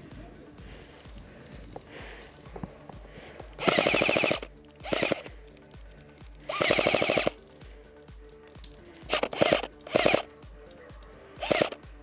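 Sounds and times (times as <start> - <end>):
electric airsoft gun bursts: 3.6 - 5.4, 6.4 - 7.4, 9.0 - 10.3, 11.4 - 11.9.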